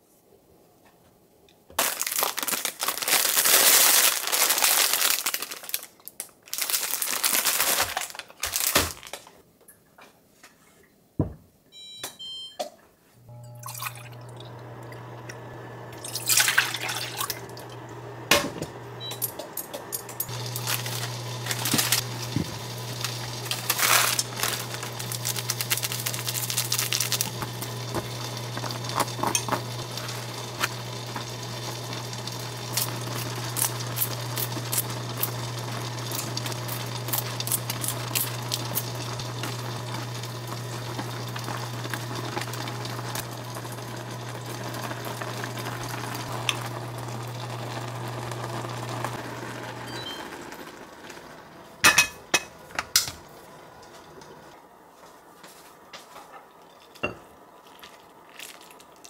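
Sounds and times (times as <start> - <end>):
cooktop humming: 11.2 - 59.0
liquid pouring into a cup: 13.5 - 15.0, 15.9 - 17.9.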